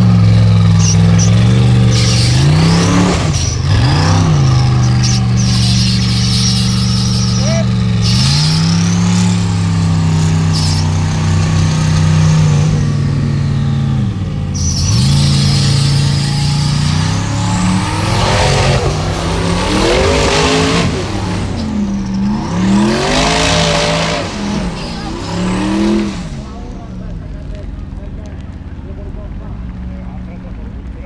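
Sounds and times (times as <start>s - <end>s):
buggy engine revving: 0.0s - 31.0s.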